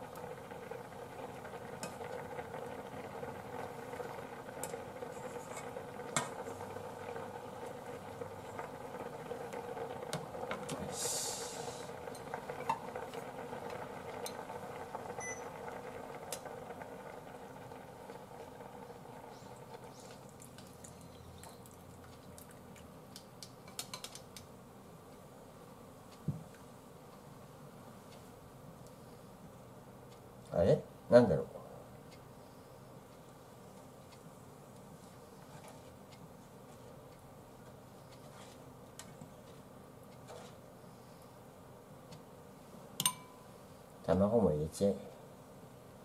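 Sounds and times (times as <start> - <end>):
soup bubbling in a saucepan: 0.0 - 24.4
ladle clinking against pot: 43.0 - 43.4.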